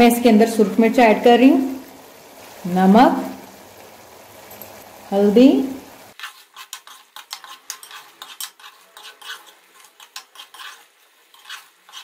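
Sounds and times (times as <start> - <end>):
metal spoon scraping a pot: 6.1 - 12.0.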